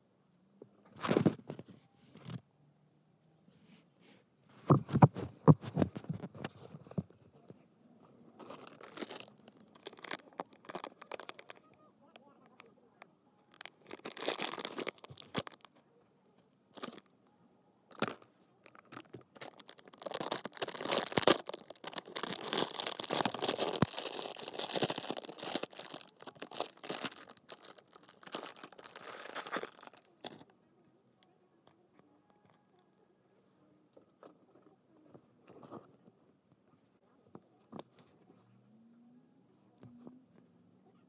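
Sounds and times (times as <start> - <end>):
plastic packaging tearing and crinkling: 8.4 - 11.6, 13.5 - 15.7, 16.8 - 17.0, 17.9 - 30.4.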